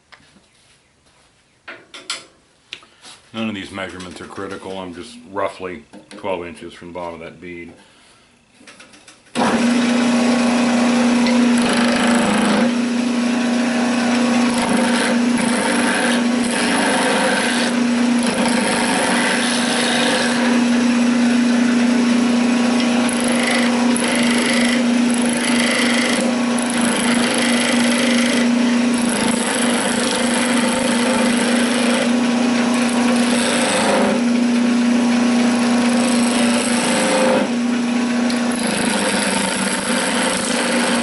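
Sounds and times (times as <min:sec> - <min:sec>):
chisel cutting spinning wood: 0:09.3 - 0:41.0
lathe motor hum: 0:09.4 - 0:41.0.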